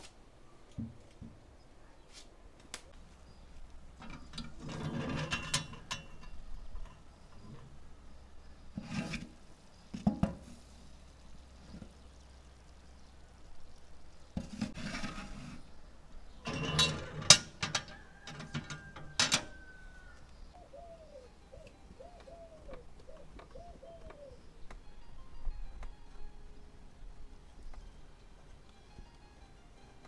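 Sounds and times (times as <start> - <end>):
metal clanks: 3.9 - 7.8, 16.4 - 19.6
metal pan scraping: 4.0 - 7.8, 8.7 - 9.4, 14.4 - 19.6
bird calling: 19.5 - 25.2.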